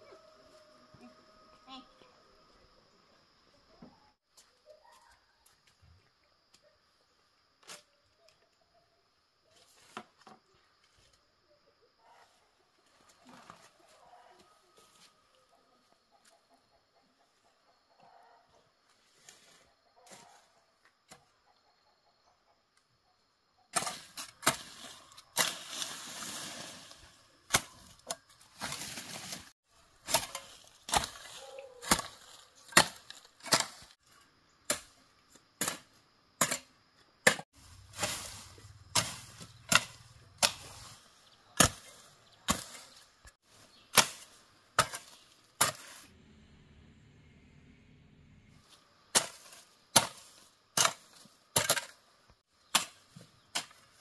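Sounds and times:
sharp chopping strikes: 27.5s - 28.1s, 35.6s - 40.9s, 41.6s - 43.0s, 43.9s - 46.0s, 49.1s - 51.9s.

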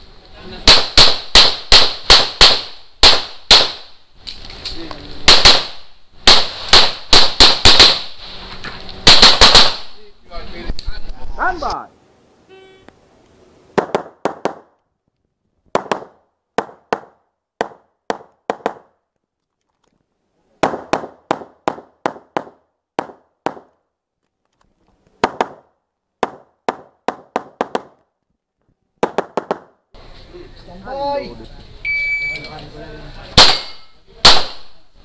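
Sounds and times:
pistol shots: 0.6s - 3.9s, 5.2s - 8.1s, 9.0s - 10.0s, 33.4s - 34.8s.

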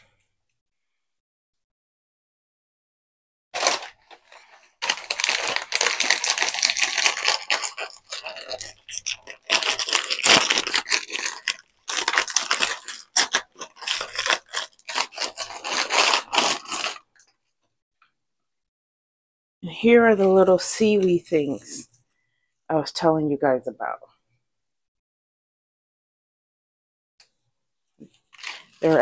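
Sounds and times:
plastic wrapping rustling and tearing: 3.6s - 17.2s, 28.0s - 29.0s.

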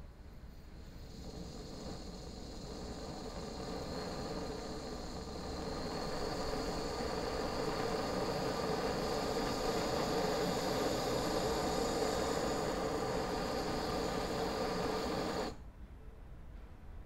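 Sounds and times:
gas stove burner hissing: 0.0s - 15.6s.

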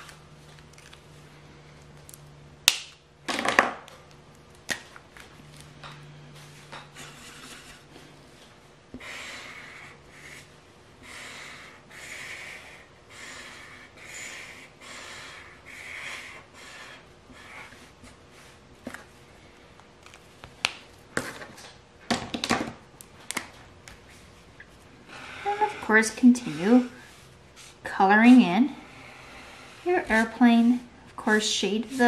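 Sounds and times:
marker scratching on paper: 7.0s - 7.8s, 25.1s - 30.7s, 31.6s - 32.0s.

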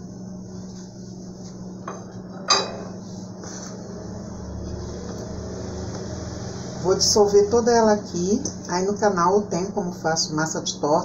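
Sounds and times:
clinks against metal bowl: 1.9s - 3.0s.

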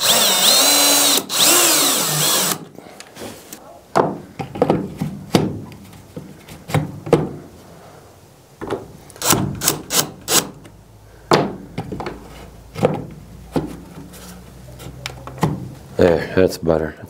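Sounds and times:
cordless drill: 0.0s - 2.7s.

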